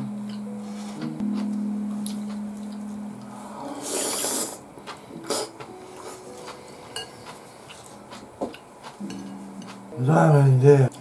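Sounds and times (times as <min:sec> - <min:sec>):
person slurping noodles: 0:03.8 - 0:04.6.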